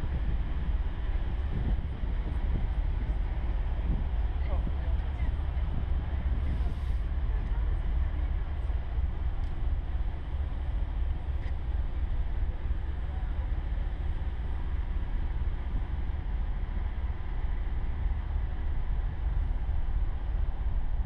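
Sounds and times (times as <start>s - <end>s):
ship rumbling through water: 0.0s - 21.0s
wind buffeting microphone: 0.0s - 21.0s.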